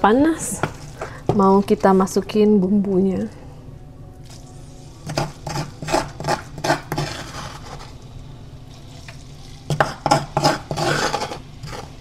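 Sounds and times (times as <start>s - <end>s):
spice paste sizzling in oil: 4.6s - 12.0s
spatula scraping pan: 5.0s - 8.0s, 9.7s - 12.0s.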